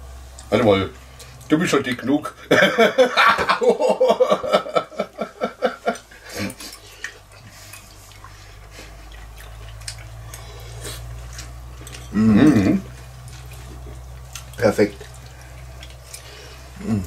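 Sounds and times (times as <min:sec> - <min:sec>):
low steady hum: 0:00.0 - 0:17.0
man laughing heartily: 0:02.4 - 0:06.6.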